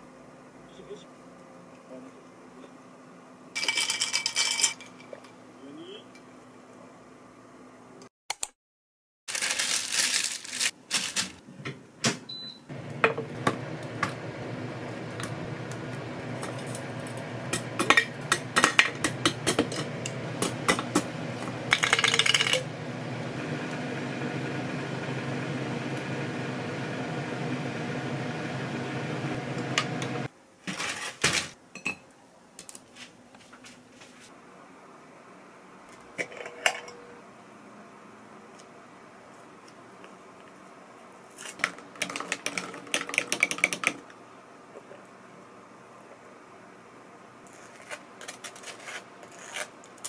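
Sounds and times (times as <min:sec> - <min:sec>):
air fryer humming: 0:11.9 - 0:30.3.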